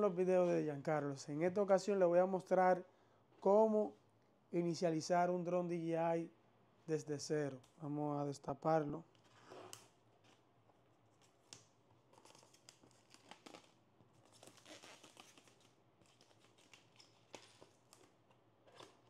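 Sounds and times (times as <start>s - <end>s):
plastic wrap crinkling and tearing: 11.2s - 19.0s.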